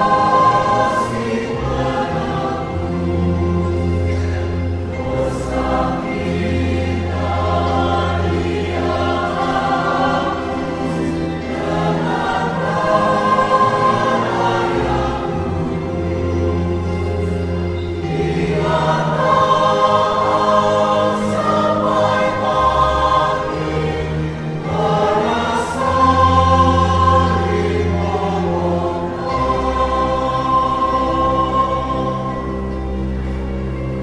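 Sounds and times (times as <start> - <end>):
church choir singing a hymn: 0.0 - 34.0.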